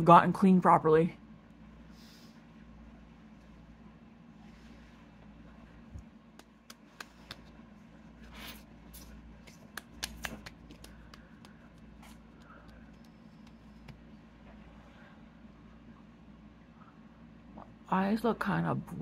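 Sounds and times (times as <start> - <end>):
low steady hum: 0.0 - 19.0
hands rubbing and patting skin: 6.0 - 14.1.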